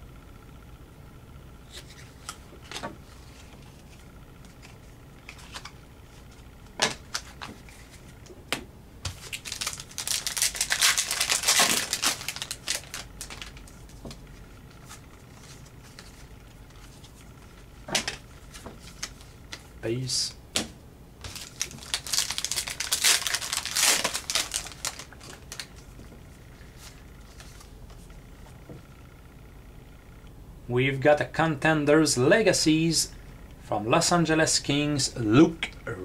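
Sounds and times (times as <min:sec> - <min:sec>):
card pack wrapper crinkling: 0:09.1 - 0:14.0, 0:21.2 - 0:25.9.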